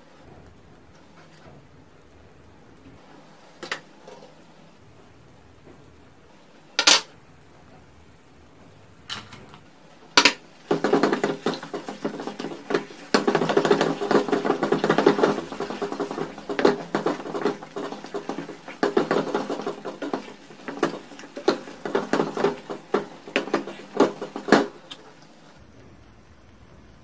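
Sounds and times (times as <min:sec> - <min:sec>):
wooden spatula scraping pan: 0:10.2 - 0:25.3.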